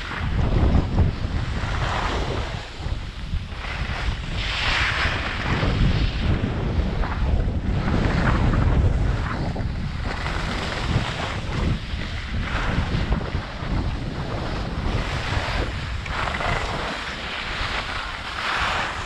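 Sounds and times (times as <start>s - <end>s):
wind buffeting microphone: 0.0s - 19.0s
skis hissing on packed snow: 15.0s - 19.0s.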